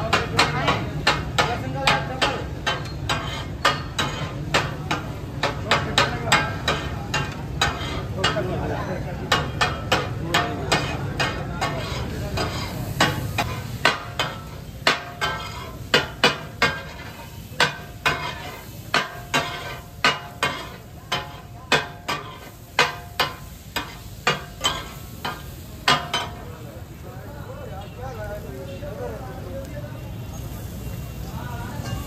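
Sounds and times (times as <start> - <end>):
steel spatula clanking on griddle: 0.0 - 26.6, 31.6 - 32.0
sizzle of frying: 0.0 - 32.0.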